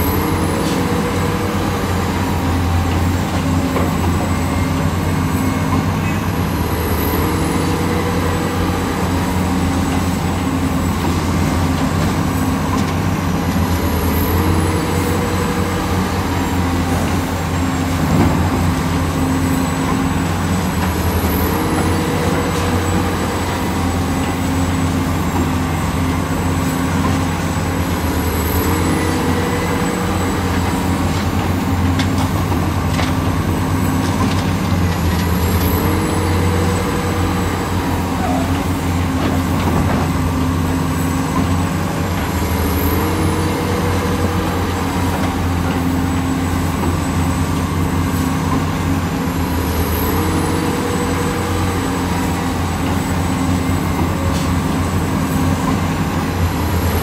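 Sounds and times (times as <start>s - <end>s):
excavator engine droning: 0.0s - 57.0s.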